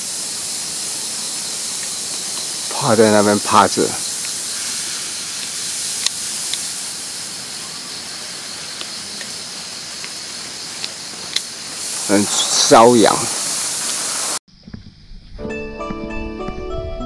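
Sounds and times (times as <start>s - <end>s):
insect chorus hiss: 0.0s - 15.4s.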